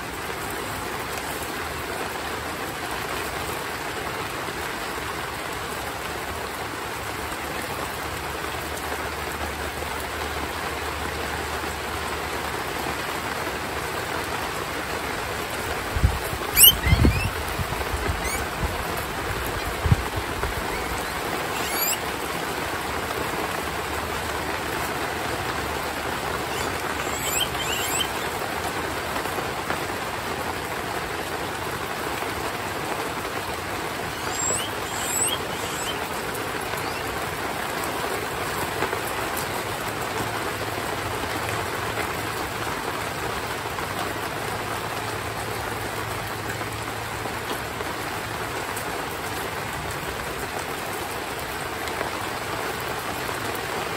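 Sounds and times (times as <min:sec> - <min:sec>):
heavy rain falling: 0:00.0 - 0:53.9
faint high chirps: 0:16.5 - 0:17.4, 0:18.1 - 0:18.5, 0:20.6 - 0:22.1, 0:26.4 - 0:28.4, 0:34.0 - 0:37.1.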